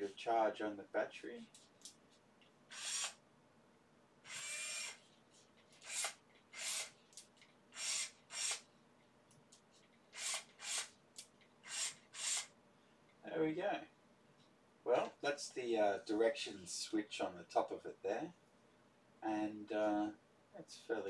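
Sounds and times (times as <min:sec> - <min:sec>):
electric screwdriver motor whirring: 0:02.7 - 0:03.2, 0:04.3 - 0:05.0, 0:05.8 - 0:07.0, 0:07.8 - 0:08.6, 0:10.2 - 0:10.9, 0:11.7 - 0:12.5.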